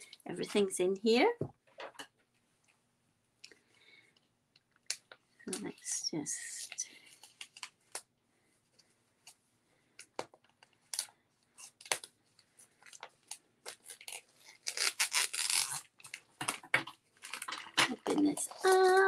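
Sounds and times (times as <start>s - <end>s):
plastic crinkling: 10.5s - 19.0s.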